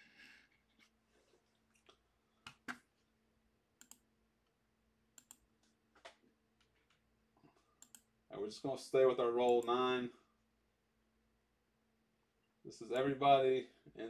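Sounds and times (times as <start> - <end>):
computer mouse clicks: 3.8 - 4.1, 5.2 - 7.0, 7.8 - 8.1.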